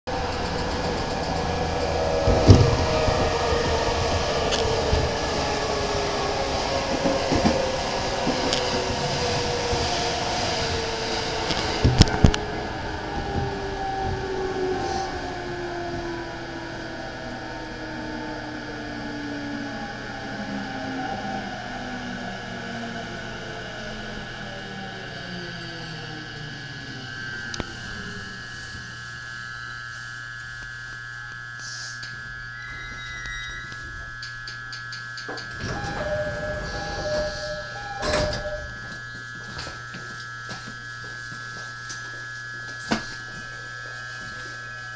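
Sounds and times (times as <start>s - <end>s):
passing train clatters: 0.1s - 21.4s, 34.1s - 39.0s
train wheels rumbling on rail: 0.1s - 21.6s, 33.8s - 39.1s
electric train motor whine: 0.1s - 44.9s
two-tone bell: 32.5s - 34.3s.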